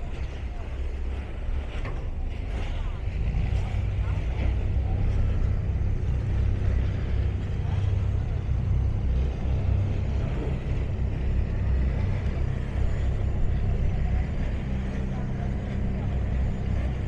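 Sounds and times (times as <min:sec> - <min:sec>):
diesel engine rumbling: 0:00.0 - 0:17.0.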